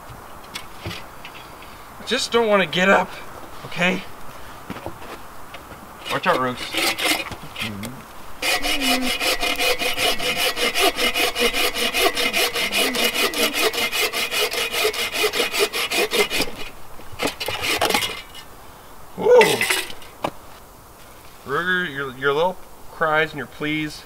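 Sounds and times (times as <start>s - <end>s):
hand saw cutting log: 6.0s - 7.8s, 8.4s - 18.5s
dog whining: 8.6s - 9.3s, 12.2s - 13.8s.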